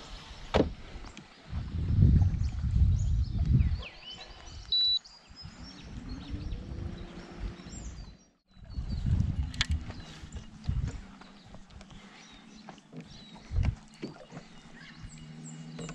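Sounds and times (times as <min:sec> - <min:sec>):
low rumbling bumps: 0:05.5 - 0:15.9.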